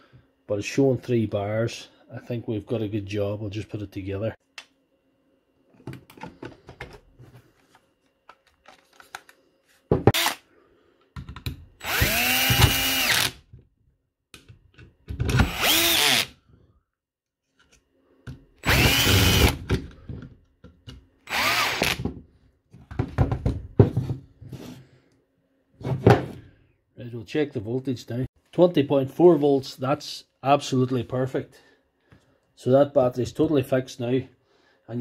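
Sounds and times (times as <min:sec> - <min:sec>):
cordless drill running: 0:10.1 - 0:10.4, 0:11.8 - 0:13.4, 0:15.3 - 0:16.4, 0:18.6 - 0:19.6, 0:21.3 - 0:22.0.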